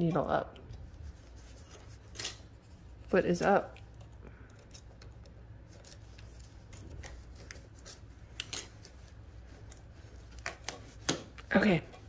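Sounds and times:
steady low hum: 0.0 - 12.0
paper rustling: 4.5 - 11.5.

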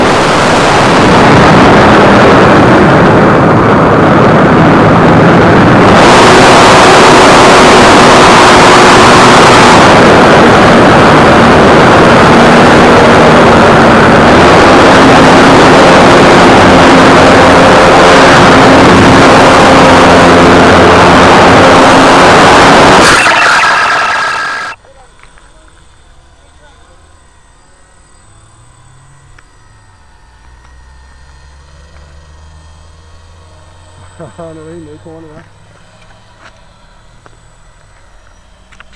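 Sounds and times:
wind rush: 0.0 - 24.8
model airplane motor and propeller: 34.0 - 38.9.

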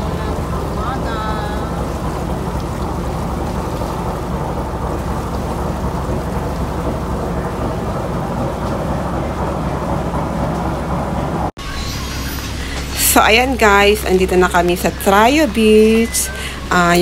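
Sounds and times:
boat engine drone: 0.0 - 17.0
rain: 0.0 - 17.0
wind: 0.0 - 17.0.

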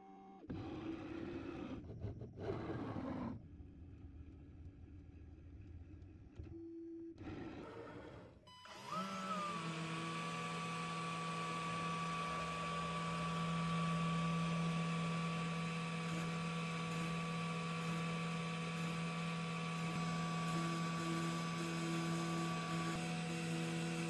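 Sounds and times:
cnc spindle high whine: 8.5 - 24.0.

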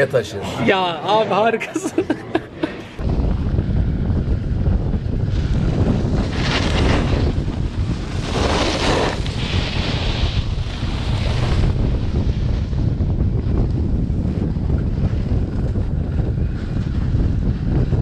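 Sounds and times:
wind buffeting microphone: 2.9 - 18.0
snowboard scraping snow: 5.2 - 18.0.

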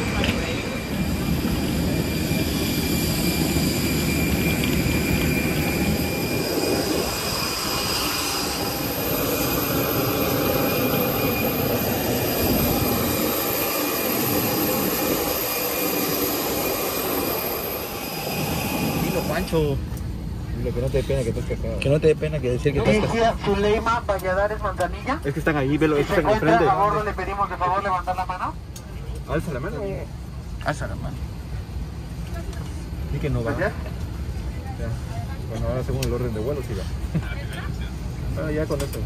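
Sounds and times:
faint high whines: 0.0 - 21.4
airliner cabin engine rush: 0.0 - 39.0.

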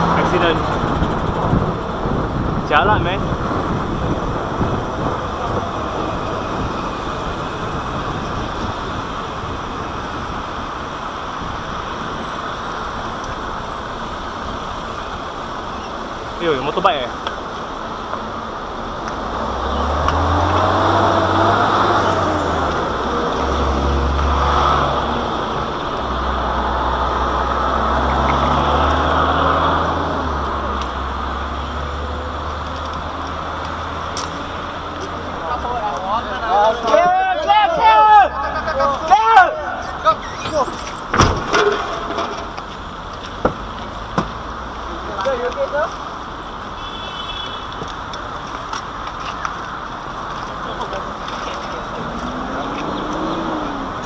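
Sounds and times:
wind rushing on microphone: 0.0 - 12.1
vehicle engines running: 0.0 - 46.8, 47.8 - 54.0
road traffic: 0.0 - 54.0.

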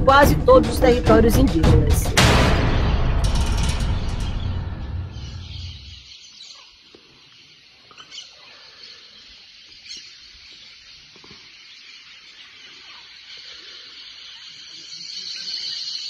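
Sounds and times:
music: 0.0 - 5.9.

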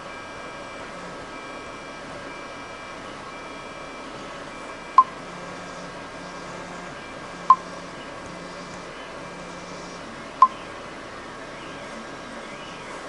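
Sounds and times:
printer stepper motors whining: 0.0 - 13.0
short sharp beeps: 1.4 - 7.8.

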